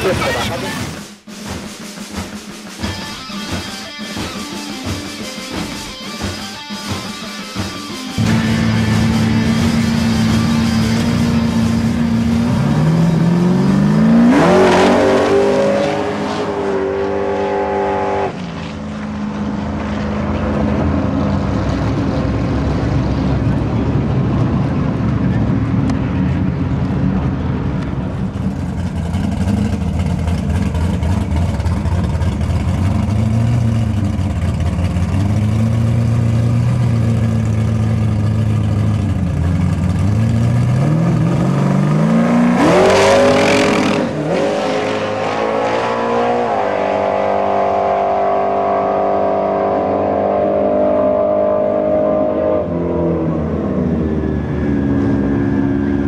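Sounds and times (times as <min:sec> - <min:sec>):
drag car engine revving: 0:02.7 - 0:56.0.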